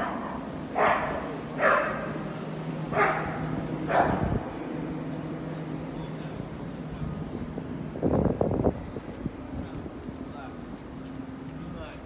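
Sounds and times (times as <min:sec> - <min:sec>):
dog barking: 0:00.0 - 0:02.1, 0:02.9 - 0:04.3
steady low hum: 0:00.0 - 0:12.0.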